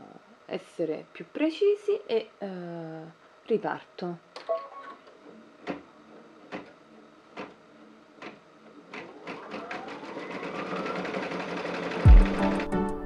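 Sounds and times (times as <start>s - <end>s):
embroidery machine stitching: 8.2s - 12.8s
motor whine: 9.0s - 12.7s.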